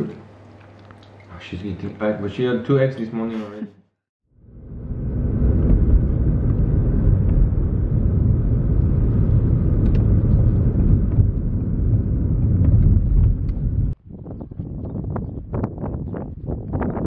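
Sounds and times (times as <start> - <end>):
wind buffeting microphone: 4.6 - 17.0.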